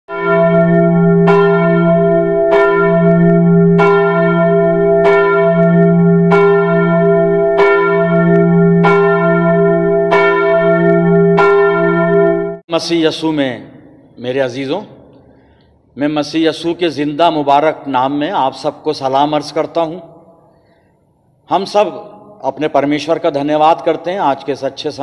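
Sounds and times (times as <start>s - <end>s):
church bell tolling: 0.1s - 12.7s.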